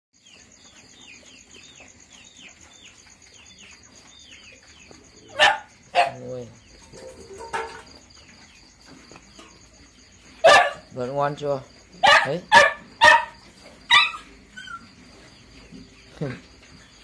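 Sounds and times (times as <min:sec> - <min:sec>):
high pulsing insect trill: 0:01.6 - 0:15.0
sharp animal cries: 0:12.0 - 0:14.9.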